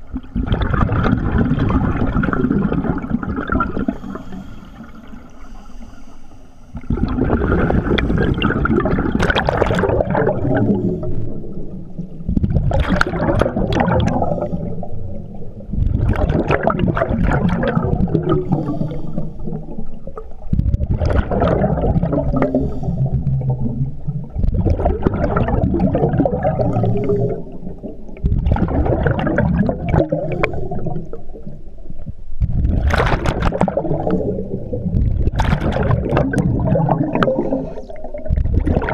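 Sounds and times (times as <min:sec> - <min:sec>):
diver's exhaled bubbles gurgling: 0:00.0 - 0:05.8, 0:06.7 - 0:38.9
scuba regulator inhales: 0:03.8 - 0:06.8, 0:18.4 - 0:19.5, 0:22.5 - 0:23.2, 0:37.2 - 0:38.2.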